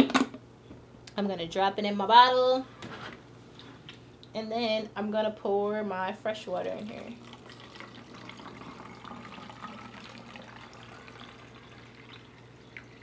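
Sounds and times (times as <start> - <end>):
water pouring into a bottle: 6.8 - 13.0.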